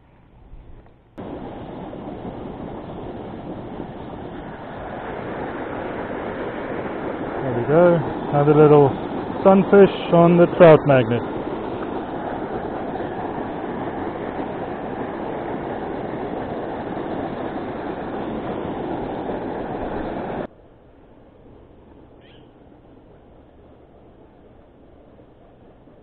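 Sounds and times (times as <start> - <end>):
outdoor ambience: 0.0 - 26.0
loud rushing noise: 1.2 - 20.5
faint high chirp: 22.2 - 22.6.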